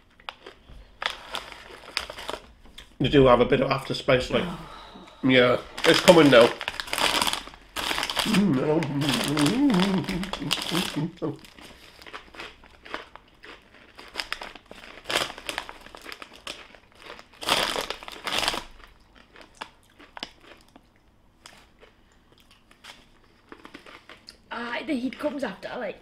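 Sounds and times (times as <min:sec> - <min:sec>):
chips crunching being chewed: 0:00.0 - 0:02.9, 0:05.7 - 0:24.5
plastic snack packet crinkling: 0:00.2 - 0:02.9, 0:05.6 - 0:20.8, 0:22.7 - 0:25.3.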